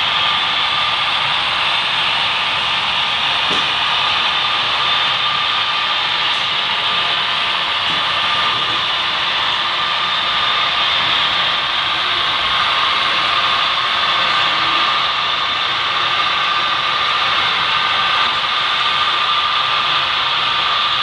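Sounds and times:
model train rolling on track: 0.0 - 21.0.

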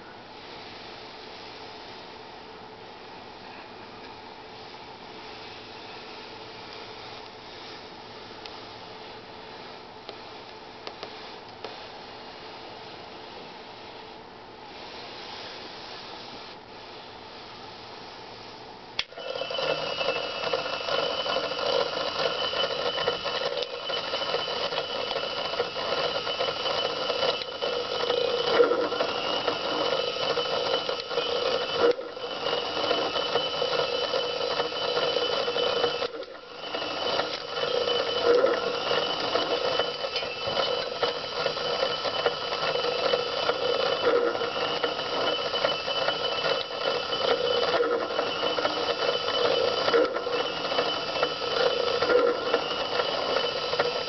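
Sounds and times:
punch press motor whirring: 19.0 - 54.0.

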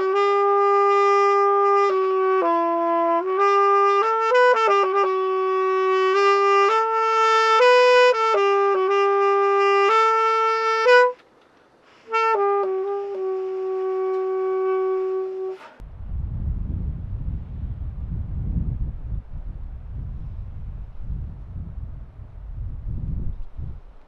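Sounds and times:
saxophone slow melody: 0.0 - 11.2, 12.0 - 15.8.

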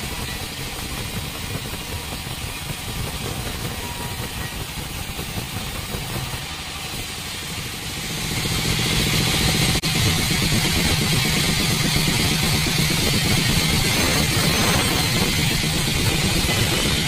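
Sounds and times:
band saw cutting log: 12.3 - 17.0.

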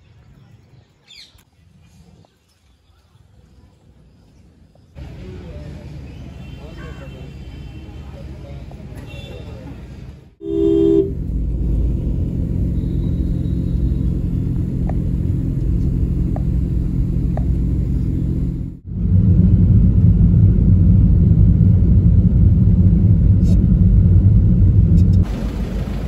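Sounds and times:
road traffic rumble: 3.3 - 26.0
vehicle driving along road: 5.0 - 26.0
vehicle horn honk: 10.4 - 11.2.

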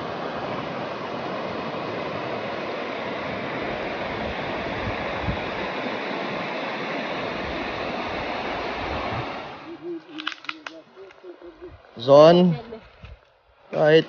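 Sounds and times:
water rushing over rocks: 0.0 - 9.8.

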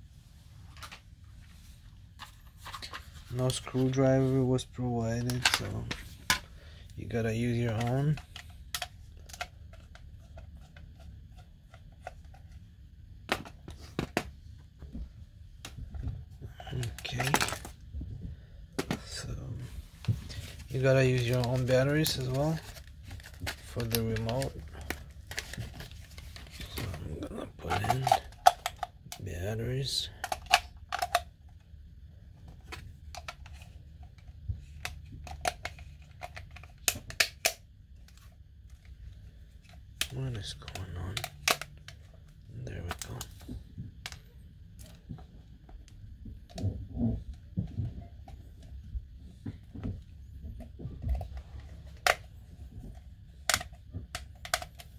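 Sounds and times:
plastic cover snapping on: 21.2 - 27.0.

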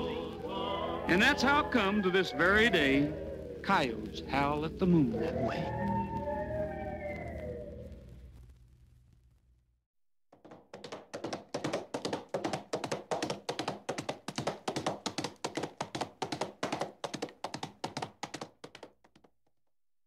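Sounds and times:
sharp taps: 10.4 - 19.3.

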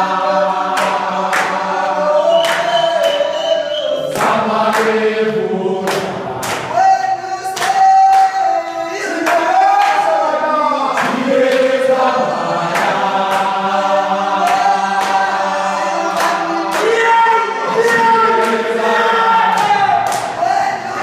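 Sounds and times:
group singing in unison: 0.0 - 21.0.

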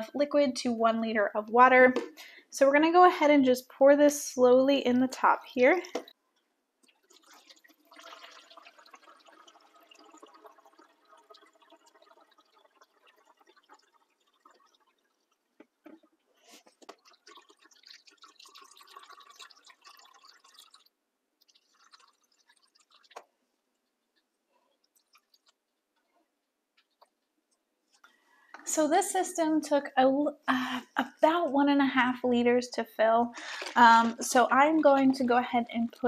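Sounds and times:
water pouring and trickling: 6.8 - 26.2, 33.3 - 36.0.

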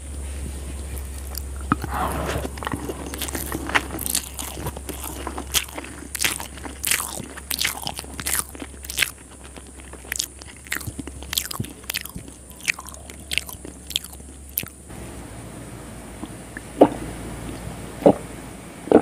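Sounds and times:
steady low hum: 0.0 - 19.0
wet chewing and crunching: 0.4 - 14.9.

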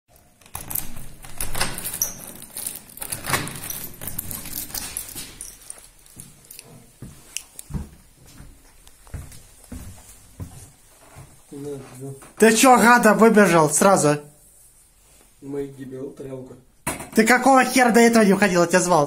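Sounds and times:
key working in a lock: 0.4 - 5.8
keys jangling: 0.5 - 6.6.

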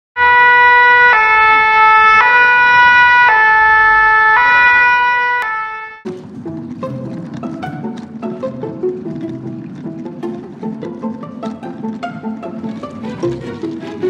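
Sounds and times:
two-tone emergency siren: 0.2 - 6.0
plucked strings: 6.0 - 14.0.

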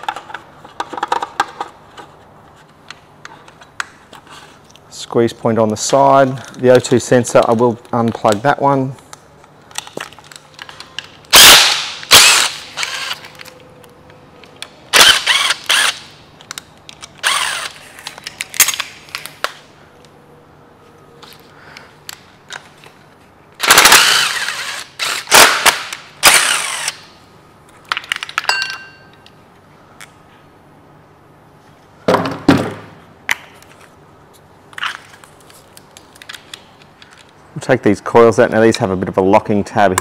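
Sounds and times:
parts clicking and clattering: 0.0 - 4.8, 27.7 - 29.4, 34.7 - 37.4.

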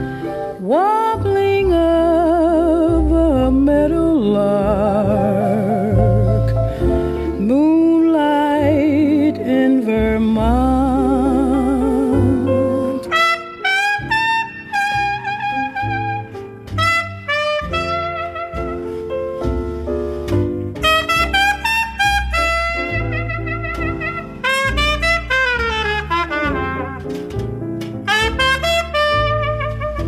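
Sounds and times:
piano: 0.0 - 30.0
trumpet melody: 13.0 - 19.5, 20.7 - 30.0.

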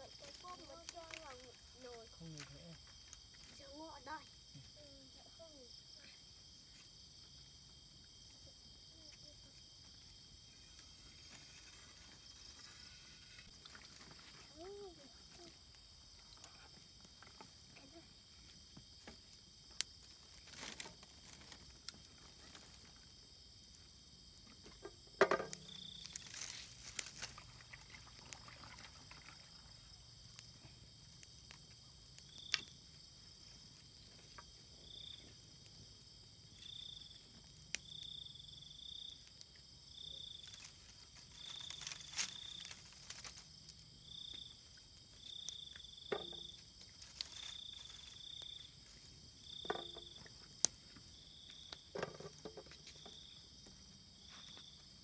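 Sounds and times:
cricket chorus: 0.0 - 55.0
insect short chirps: 10.3 - 14.5.

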